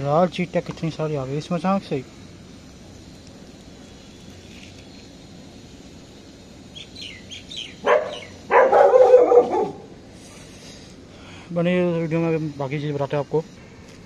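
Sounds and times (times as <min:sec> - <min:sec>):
short falling bird chirps: 0:06.8 - 0:08.4
harsh bird call: 0:06.8 - 0:09.8.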